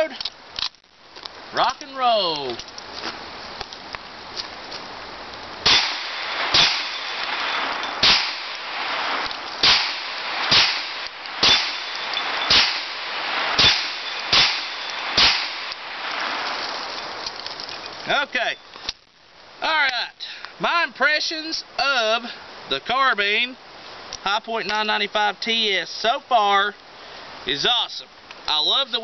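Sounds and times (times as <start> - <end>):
carbine gunshots: 5.6 - 17.2.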